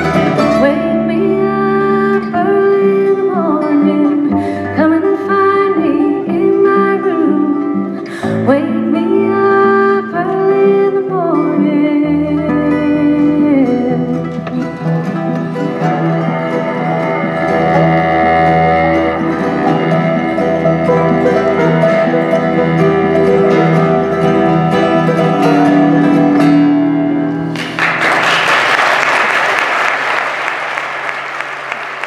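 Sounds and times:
bluegrass band playing: 0.0s - 10.7s, 12.6s - 28.0s
audience applause: 27.5s - 32.0s.

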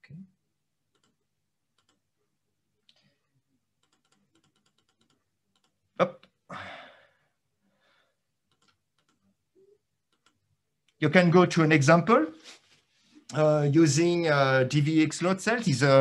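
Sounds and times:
computer mouse or keyboard clicks: 1.8s - 2.0s, 8.5s - 9.3s.

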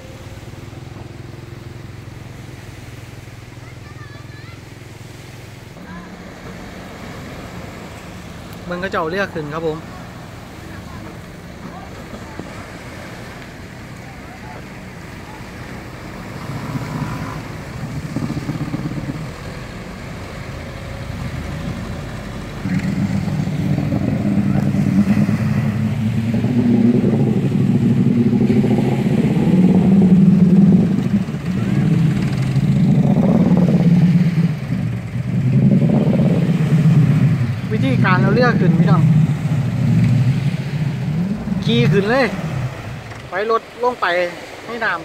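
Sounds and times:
engine running and revving: 0.0s - 43.5s.

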